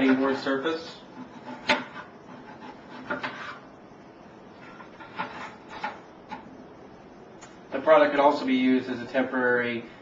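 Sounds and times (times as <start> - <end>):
scraping and rubbing sounds: 0.0 - 3.7, 4.5 - 6.5.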